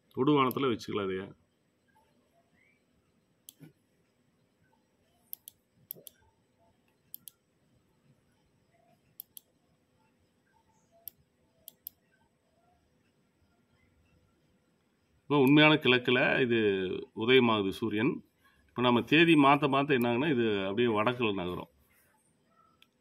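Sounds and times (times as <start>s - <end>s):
computer mouse clicking: 0.4s - 0.6s, 3.5s - 3.8s, 5.3s - 6.3s, 6.9s - 7.4s, 9.2s - 9.5s, 11.0s - 12.1s.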